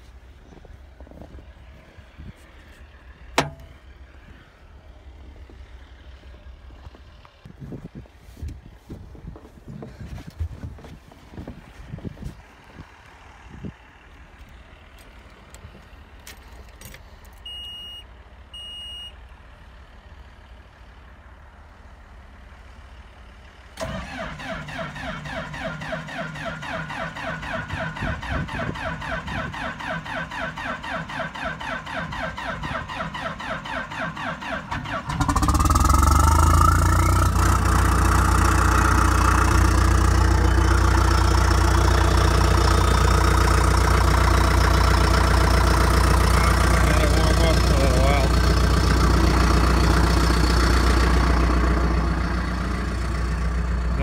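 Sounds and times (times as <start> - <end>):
diesel engine cranking and running: 0.0 - 54.0
short beeps: 17.4 - 19.2.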